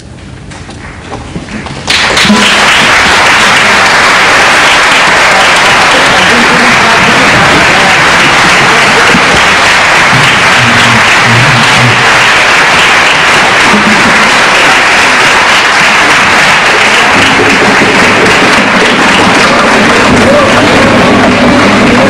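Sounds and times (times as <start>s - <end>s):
audience applauding: 1.8s - 22.0s
faint voices: 4.6s - 14.8s, 16.2s - 22.0s.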